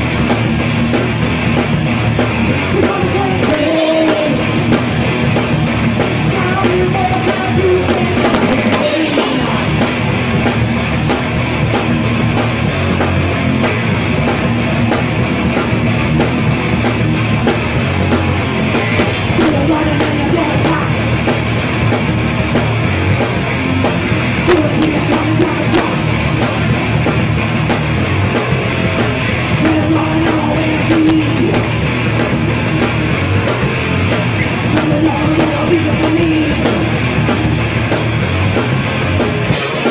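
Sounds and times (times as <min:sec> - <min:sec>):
drum kit: 0:00.0 - 0:39.9
electric bass: 0:00.0 - 0:39.9
electric guitars: 0:00.0 - 0:39.9.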